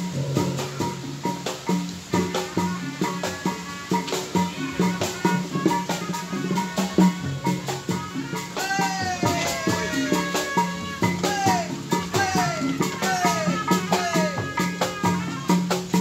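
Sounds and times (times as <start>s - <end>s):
sustained melody line: 0.0s - 8.6s
fast drumming and percussion: 0.0s - 16.0s.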